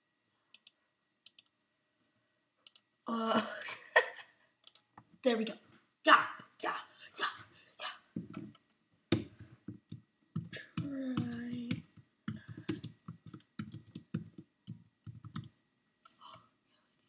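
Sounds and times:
computer keyboard typing: 0:09.1 - 0:15.6.

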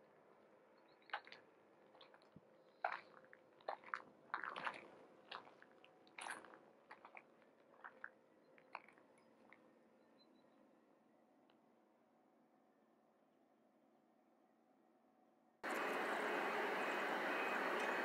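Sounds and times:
faint crunching footsteps: 0:01.1 - 0:09.6.

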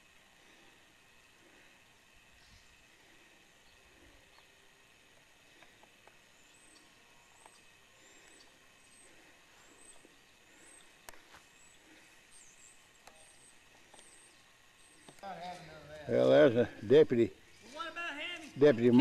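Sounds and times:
small bird chirping: 0:06.2 - 0:15.2.

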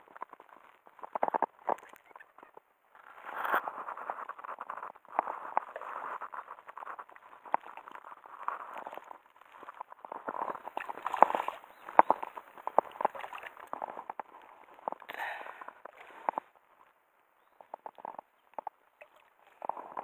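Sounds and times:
dry reeds and clothing rustling: 0:00.0 - 0:20.0.

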